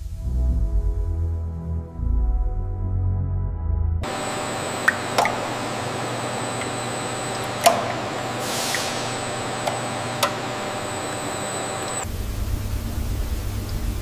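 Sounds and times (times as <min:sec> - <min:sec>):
thin high whine: 0:04.0 - 0:13.5
machinery hum: 0:04.0 - 0:14.0
brief hiss: 0:08.4 - 0:09.3.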